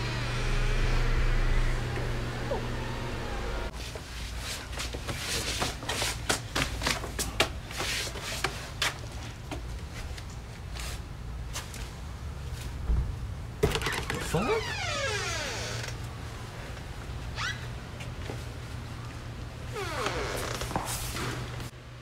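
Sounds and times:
low steady hum: 0.0s - 3.7s.

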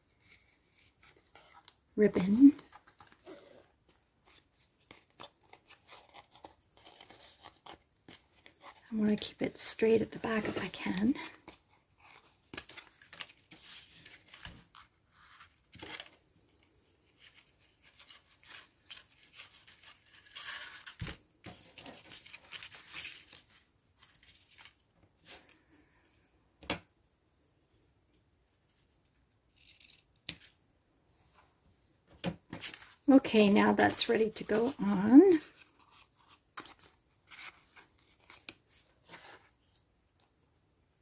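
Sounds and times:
paper tag and ribbon rustling: 0.1s - 25.5s, 32.6s - 39.8s.

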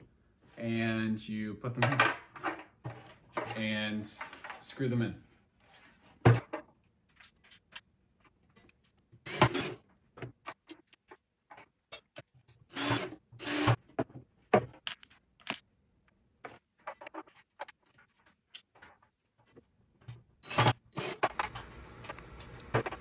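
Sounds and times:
cordless drill driving screws: 9.3s - 9.8s, 12.7s - 13.8s.

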